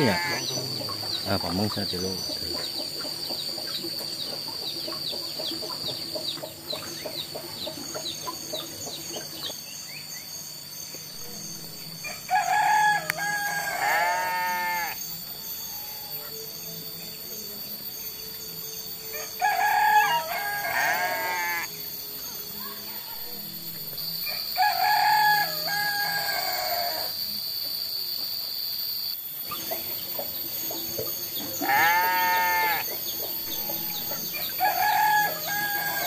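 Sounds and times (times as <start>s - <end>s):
rooster crowing: 0.0s - 1.4s, 12.0s - 16.4s, 19.1s - 21.7s, 24.2s - 27.2s, 31.5s - 36.0s
high-pitched background tone: 0.0s - 3.1s, 10.5s - 19.4s, 20.2s - 36.0s
birds chirping: 0.0s - 27.0s, 29.1s - 36.0s.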